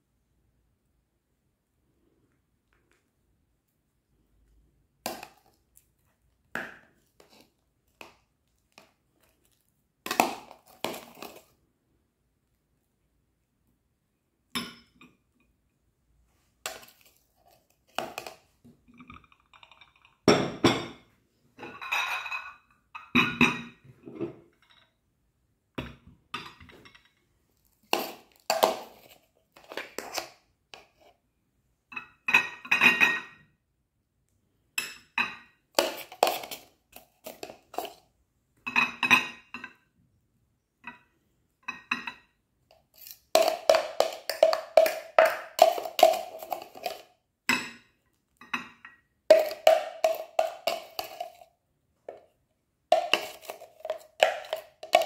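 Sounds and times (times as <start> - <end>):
spoon scraping plastic jug: 7.0 - 11.6, 16.6 - 18.5, 27.6 - 31.2, 35.8 - 38.0, 42.7 - 47.1, 49.3 - 51.5, 52.9 - 55.0
plates and bowls clinking: 18.0 - 24.9, 38.7 - 39.8, 43.0 - 51.5, 52.9 - 55.0.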